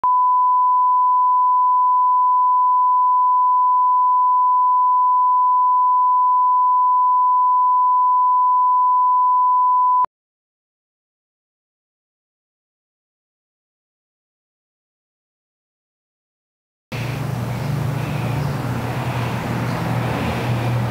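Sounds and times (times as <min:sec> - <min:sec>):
steady test tone beep: 0:00.0 - 0:10.1.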